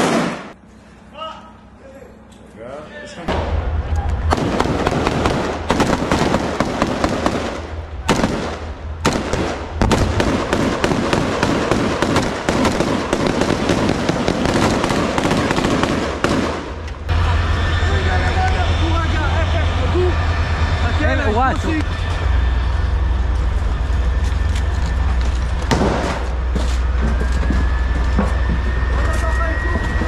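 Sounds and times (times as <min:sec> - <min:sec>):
rapid rifle gunfire: 0:04.3 - 0:16.8.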